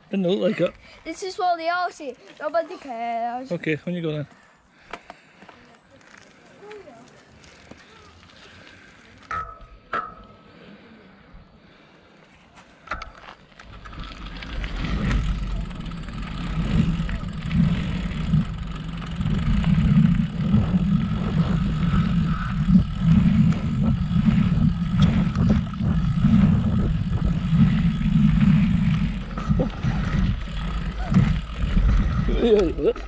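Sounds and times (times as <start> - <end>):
bike rattles and knocks: 12.8 - 33.0
tyres rumbling on dirt: 12.9 - 33.0
wind buffeting microphone: 13.7 - 33.0.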